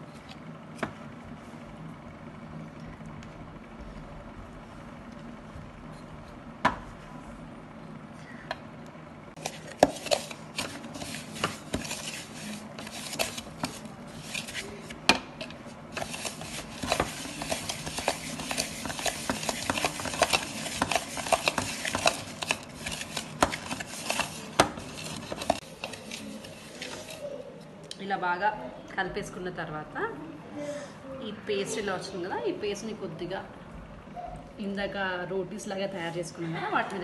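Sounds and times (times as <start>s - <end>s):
spoon stirring in a blender jar: 9.4s - 27.3s.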